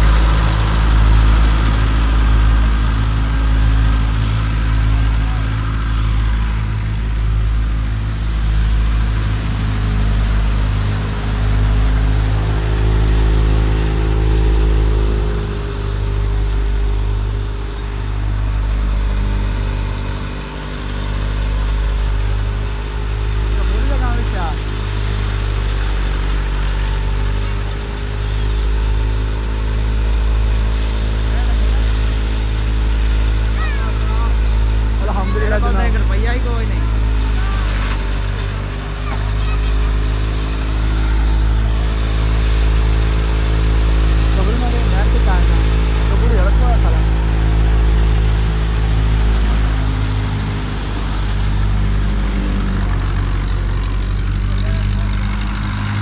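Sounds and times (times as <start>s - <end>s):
thresher machine drone: 0.0s - 56.0s
tractor diesel engine under load: 0.0s - 56.0s.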